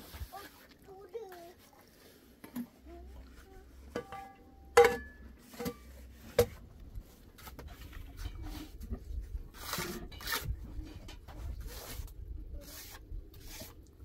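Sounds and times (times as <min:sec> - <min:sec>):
metal utensils clinking on pot: 0:03.9 - 0:05.9.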